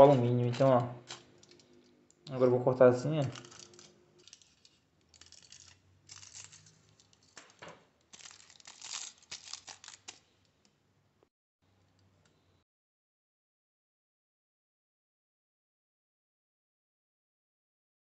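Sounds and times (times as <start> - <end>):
foil crinkling: 0.0 - 1.6, 3.2 - 10.3
scissors snipping foil: 0.0 - 1.6, 3.2 - 10.3.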